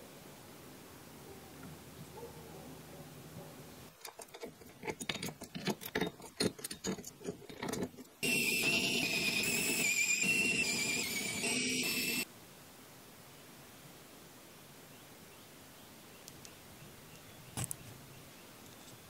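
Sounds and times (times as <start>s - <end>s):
electric screwdriver whine: 8.2s - 12.2s.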